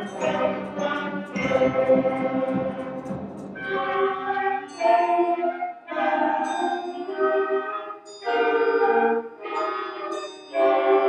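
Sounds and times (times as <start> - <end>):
concert band playing held chords: 0.0 - 4.9.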